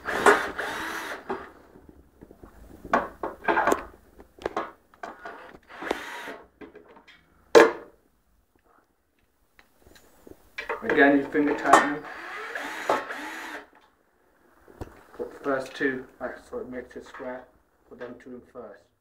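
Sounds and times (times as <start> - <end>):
furniture parts knocking and clattering: 2.3 - 5.2.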